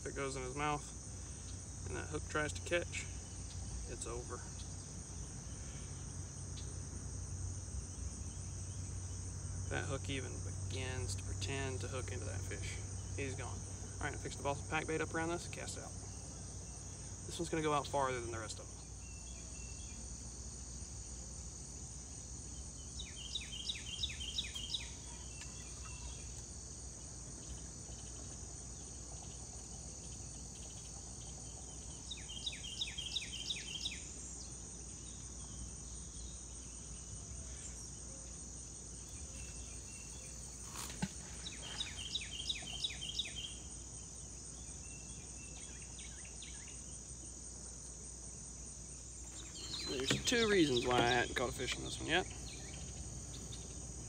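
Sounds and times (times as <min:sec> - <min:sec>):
insects droning: 0:00.0 - 0:54.0
bird calling: 0:49.3 - 0:53.8.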